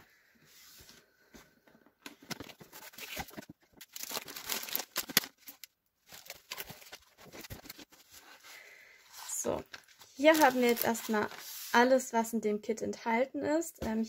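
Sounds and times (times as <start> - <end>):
packaging rustling and crinkling: 2.1 - 11.8.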